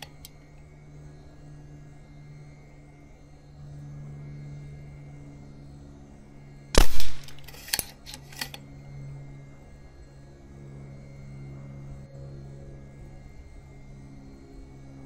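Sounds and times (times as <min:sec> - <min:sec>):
steady low hum: 0:00.0 - 0:15.0
air rifle shot: 0:06.8 - 0:07.8.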